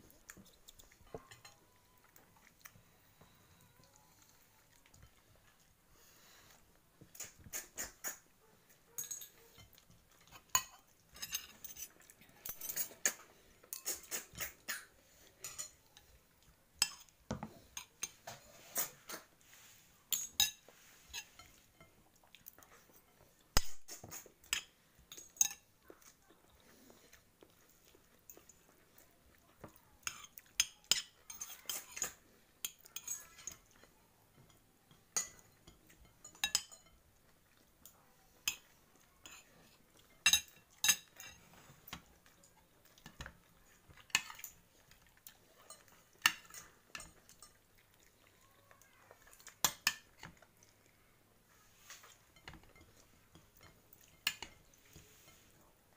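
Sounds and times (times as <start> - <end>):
cutlery clinking on a plate: 8.9 - 16.2, 20.1 - 22.0, 22.9 - 25.7, 30.1 - 37.0, 38.5 - 42.1, 45.2 - 47.7, 51.9 - 55.4.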